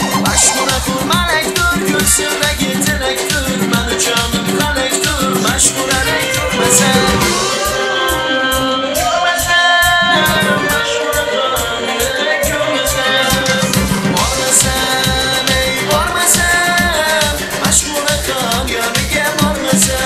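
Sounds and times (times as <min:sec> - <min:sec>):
drum and percussion beat: 0:00.0 - 0:20.0
synthesizer melody: 0:05.1 - 0:09.0.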